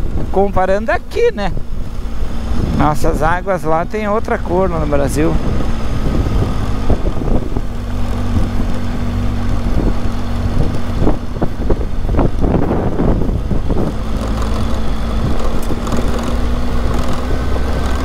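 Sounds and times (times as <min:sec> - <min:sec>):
motorcycle engine running: 0:00.0 - 0:18.0
road and wind noise: 0:00.0 - 0:18.0
clatter of knocks: 0:14.2 - 0:18.0.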